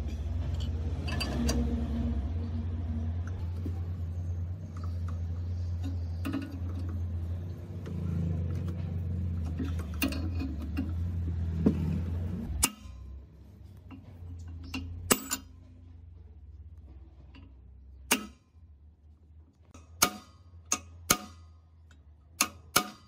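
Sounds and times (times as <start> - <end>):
steady low hum: 0.0 - 22.0
wrench metal clicks and clanks: 0.4 - 1.8, 4.6 - 11.4, 13.8 - 15.6, 19.7 - 23.0.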